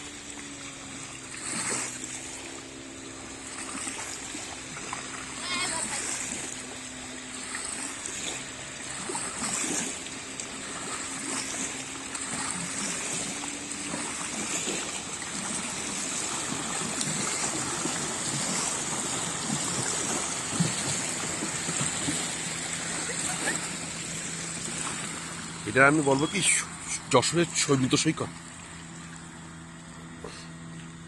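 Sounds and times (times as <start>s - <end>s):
small waves lapping on shore: 0.0s - 31.0s.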